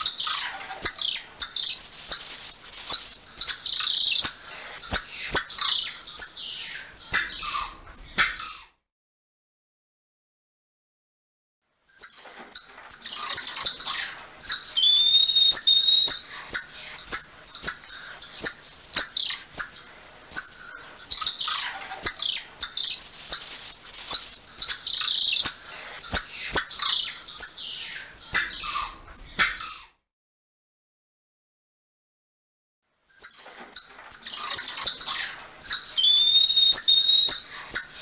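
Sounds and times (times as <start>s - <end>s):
tamarins chirping squeaks: 33.1s - 37.5s.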